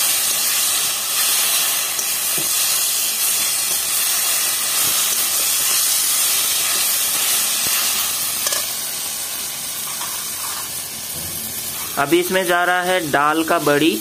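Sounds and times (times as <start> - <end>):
vegetables sizzling in a pan: 0.0 - 14.0
metal spatula scraping: 9.8 - 10.8.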